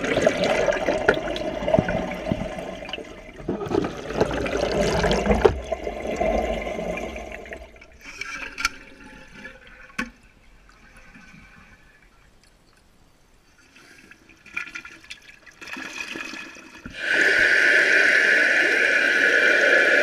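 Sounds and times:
toilet cistern flushing: 0.0s - 9.6s, 15.7s - 20.0s.

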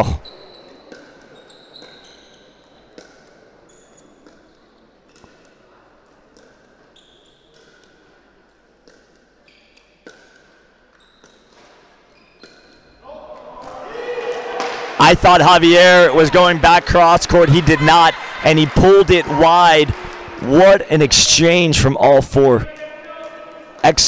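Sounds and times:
shoes squeaking on court: 0.0s - 13.1s.

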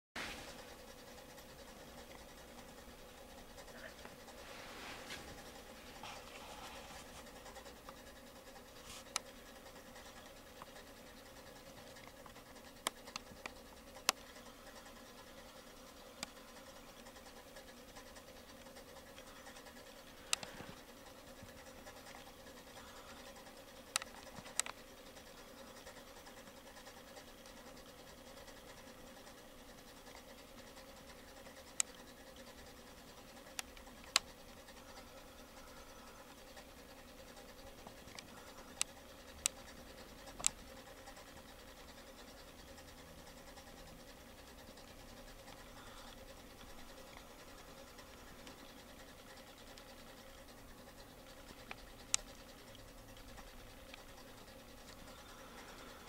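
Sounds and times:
clock motor humming: 0.2s - 56.0s
sharp clicks: 20.2s - 20.9s.

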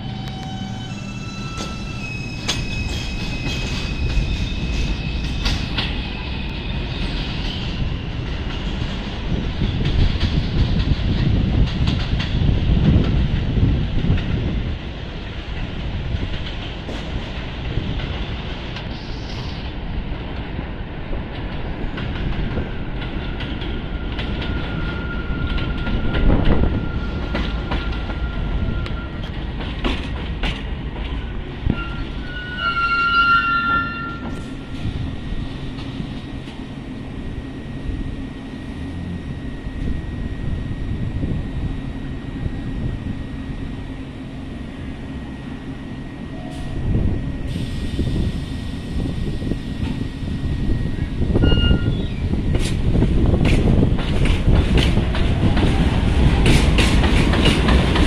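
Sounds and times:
high wheel squeal: 0.0s - 5.8s, 23.9s - 29.3s, 31.7s - 34.7s, 51.3s - 52.4s
train wheels rumbling on rails: 0.0s - 58.0s.

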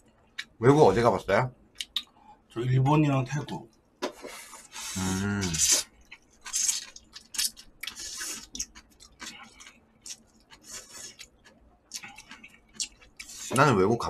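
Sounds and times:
slurping noodles: 4.3s - 5.9s.

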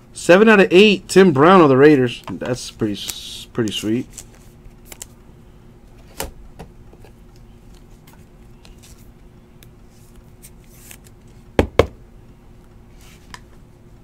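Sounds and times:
faint steady hum: 0.0s - 14.0s
hands handling trading cards: 2.1s - 5.2s, 6.9s - 11.4s.

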